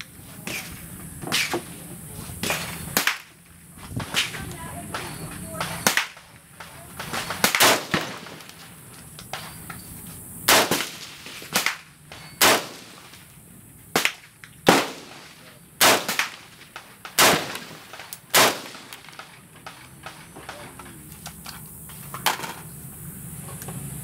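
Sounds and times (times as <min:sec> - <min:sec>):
rifle shots: 0:02.4 - 0:09.6, 0:10.4 - 0:13.3, 0:13.9 - 0:20.9.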